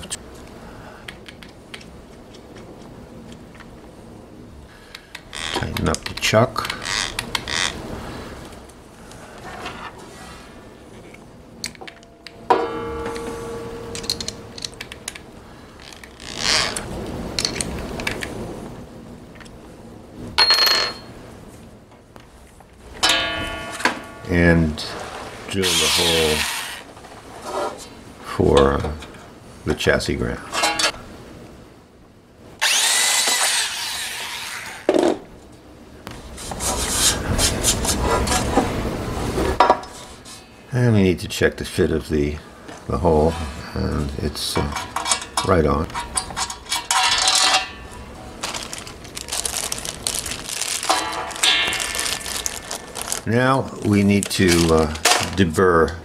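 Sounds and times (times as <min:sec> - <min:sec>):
ringing metal tone: 0:12.1 - 0:14.6, 0:23.0 - 0:24.7
scraping rasp: 0:25.0 - 0:27.9, 0:36.3 - 0:38.7.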